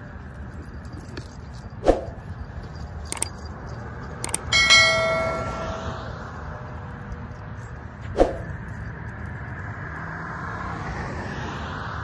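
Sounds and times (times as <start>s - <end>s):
bell ringing: 4.3s - 6.2s.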